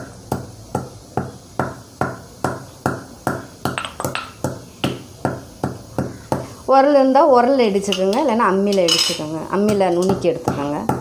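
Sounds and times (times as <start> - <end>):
stone pestle pounding in mortar: 0.3 - 6.5, 9.6 - 11.0.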